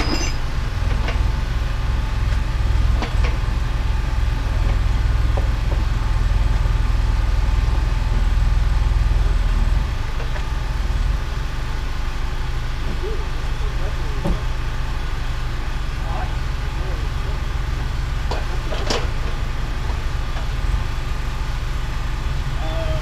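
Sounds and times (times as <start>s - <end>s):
diesel engine running: 0.0s - 23.0s.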